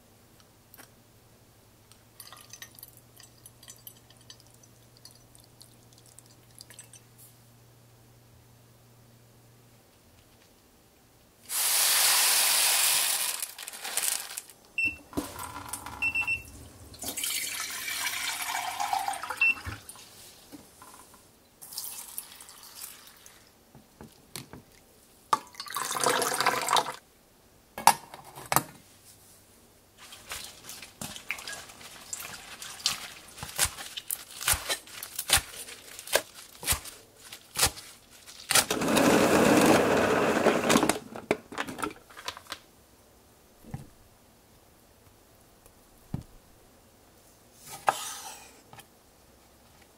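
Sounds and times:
rice rinsed under running water: 11.5s - 14.4s, 15.3s - 20.4s, 21.6s - 24.8s, 30.0s - 40.7s.

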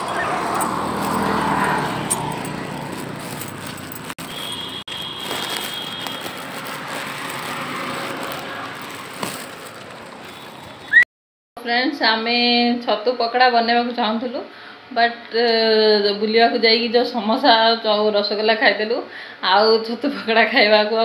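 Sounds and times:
traffic hum: 0.0s - 11.0s
vehicle passing close by: 0.0s - 11.0s.

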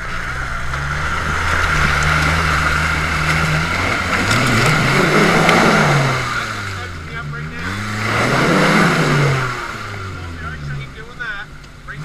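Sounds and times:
tyres hissing through mud: 0.0s - 6.8s
car engine working under load: 0.0s - 12.0s.

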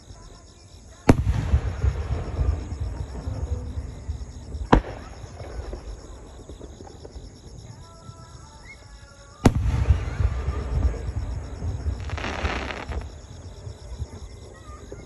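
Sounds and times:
low firework rumble: 1.1s - 8.1s, 9.4s - 15.0s
firework shells booming: 4.4s - 7.3s, 9.5s - 14.2s.

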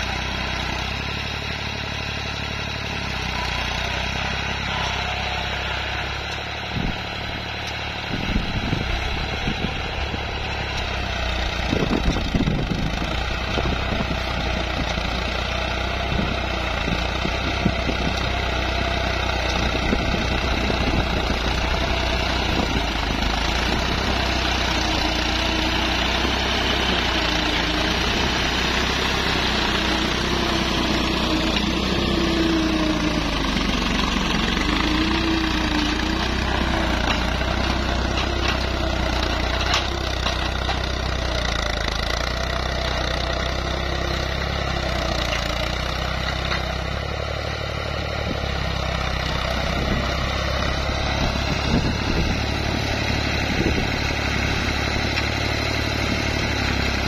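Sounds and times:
tractor diesel engine running: 0.0s - 57.0s
cultivator knocks and rattles: 33.5s - 46.8s.

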